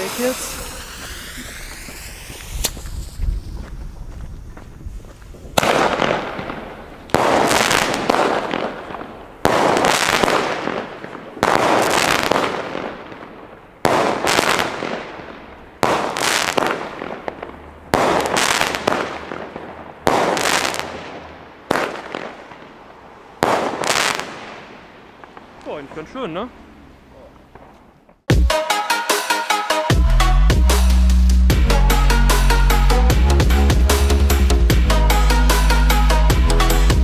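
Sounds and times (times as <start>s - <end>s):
crackling firework bursts: 0.0s - 26.2s
firework shots: 0.0s - 26.2s.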